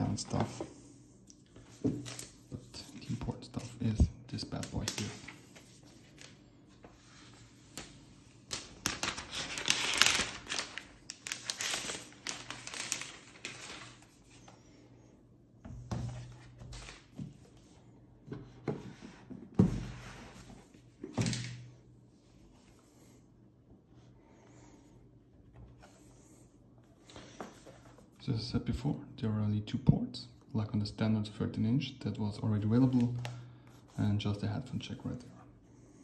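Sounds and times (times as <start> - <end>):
packaging paper rustling: 7.7 - 14.5.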